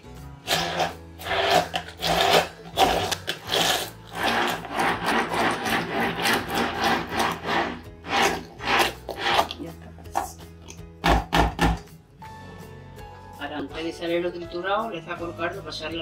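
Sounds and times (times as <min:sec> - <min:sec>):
immersion blender churning: 0:00.4 - 0:09.6.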